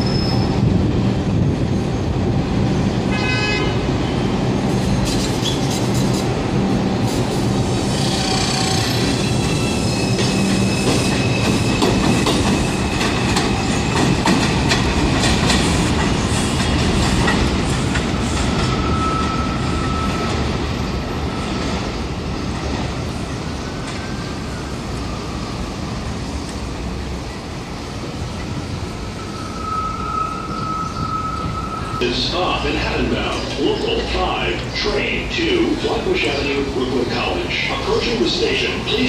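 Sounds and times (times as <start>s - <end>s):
train wheels clattering on rails: 4.6s - 6.4s, 7.0s - 25.0s
faint wheel squeal: 18.8s - 20.3s, 29.0s - 32.0s.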